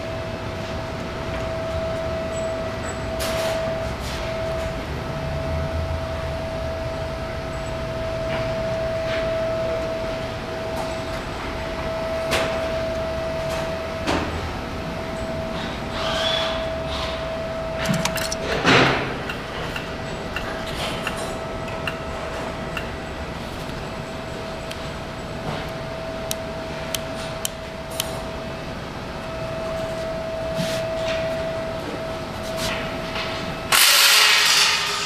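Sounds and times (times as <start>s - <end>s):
shop background hum: 0.0s - 35.0s.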